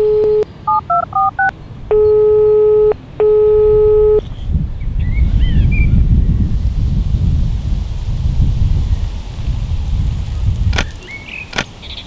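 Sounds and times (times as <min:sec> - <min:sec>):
telephone dial tone: 0:00.0 - 0:04.2
telephone ringing tones: 0:00.0 - 0:04.2
touch-tone keypad beeps: 0:00.0 - 0:04.2
lawn sprinkler spray hissing: 0:06.3 - 0:12.0
bird chirping: 0:10.3 - 0:12.0.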